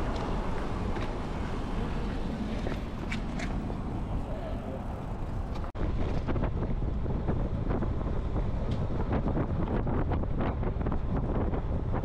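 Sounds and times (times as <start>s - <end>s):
bicycle ticks and rattles: 0.0s - 3.9s
wind buffeting microphone: 0.0s - 12.0s.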